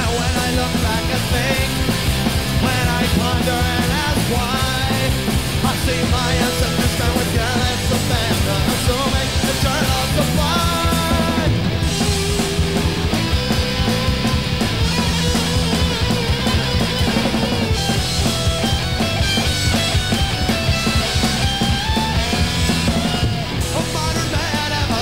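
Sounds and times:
man singing: 0:00.0 - 0:13.1, 0:23.6 - 0:25.0
rock band playing: 0:00.0 - 0:25.0.

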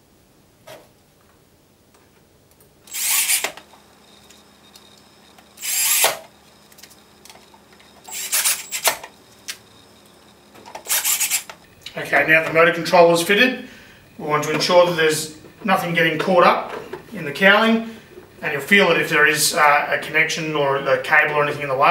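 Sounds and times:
cordless drill driving screws: 0:02.9 - 0:06.3, 0:08.0 - 0:09.2, 0:10.8 - 0:11.6.

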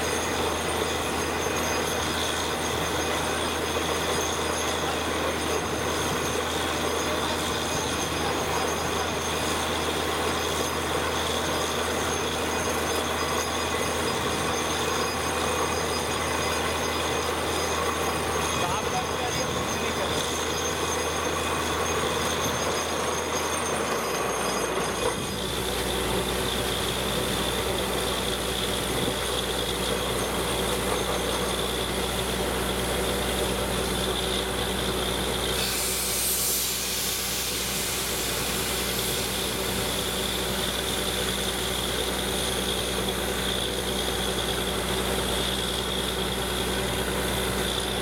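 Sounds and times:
drilling rig engine drone: 0:00.0 - 0:48.0
compressed air hissing: 0:35.6 - 0:40.2.

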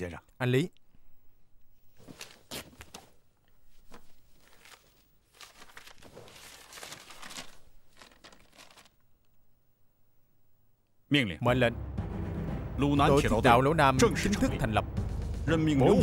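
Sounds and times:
paper rustling and crinkling: 0:02.0 - 0:09.1.

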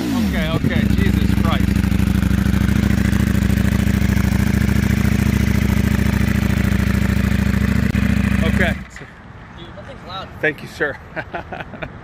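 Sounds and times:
motorcycle engine idling: 0:00.0 - 0:08.9.

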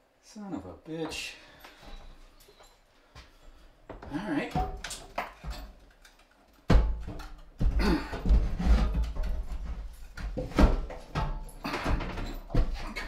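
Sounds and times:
metal sink thumping and clattering: 0:04.5 - 0:13.0.

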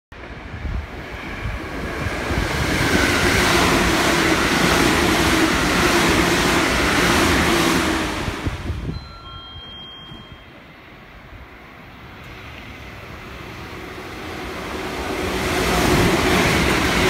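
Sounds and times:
low train hum: 0:00.1 - 0:17.0
train passing at speed: 0:00.2 - 0:17.0.

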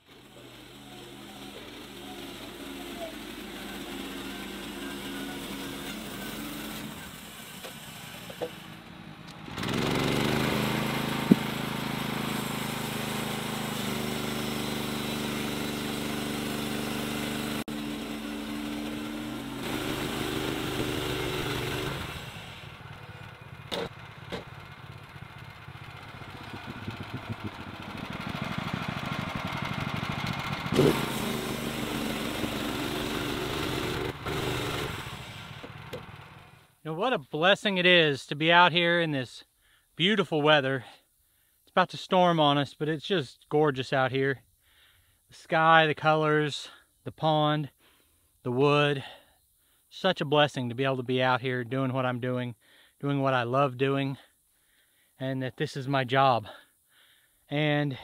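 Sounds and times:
petrol engine under load: 0:00.0 - 0:36.6
band blade sawing log: 0:00.1 - 0:08.6, 0:09.6 - 0:22.6, 0:30.7 - 0:35.7.

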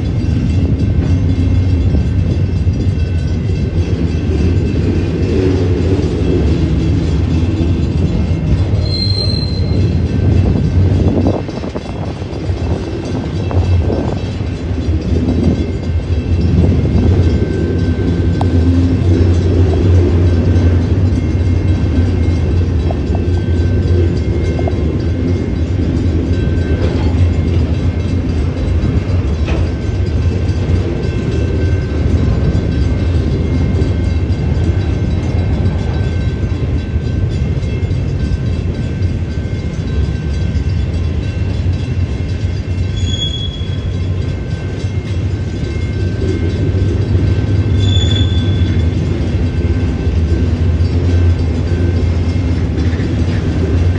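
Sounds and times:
train wheels rumbling on rails: 0:00.0 - 0:53.9
high-pitched wheel squeaks: 0:08.8 - 0:10.0, 0:42.8 - 0:44.0, 0:47.7 - 0:48.9.

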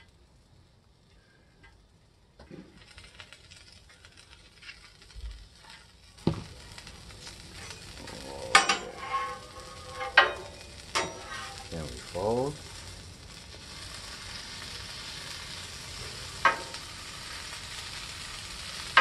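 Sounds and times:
taco sizzling on griddle: 0:00.0 - 0:19.0
metal spatula scraping griddle: 0:05.6 - 0:06.0, 0:07.2 - 0:11.8.

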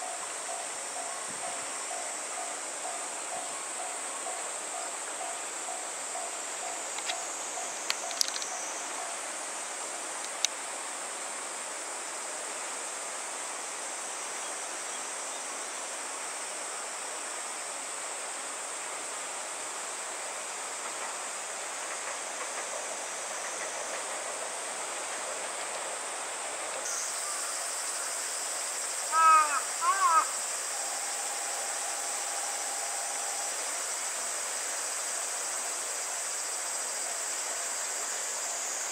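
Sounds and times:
high-pitched insect drone: 0:00.0 - 0:10.2, 0:26.8 - 0:38.9.

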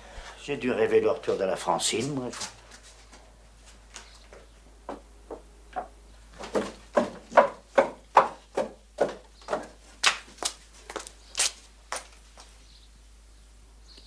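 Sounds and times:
knocks on wood: 0:04.9 - 0:09.7.

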